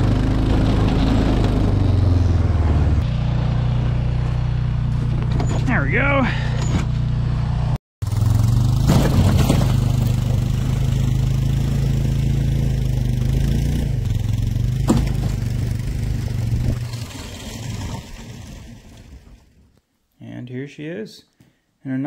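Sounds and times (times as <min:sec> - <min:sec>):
atv engine running under load: 0:00.0 - 0:17.1.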